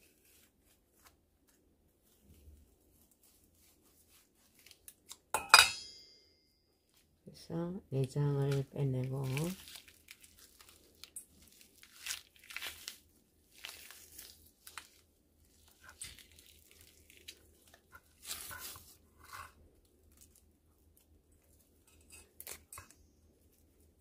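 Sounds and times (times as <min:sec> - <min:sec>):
wet tearing and squelching: 0:09.0 - 0:20.4, 0:22.0 - 0:23.0.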